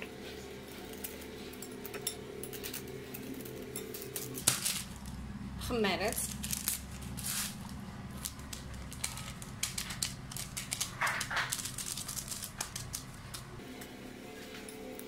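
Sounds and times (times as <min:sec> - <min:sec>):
low steady hum: 0:00.0 - 0:15.0
paper sachet rustling: 0:06.1 - 0:13.6.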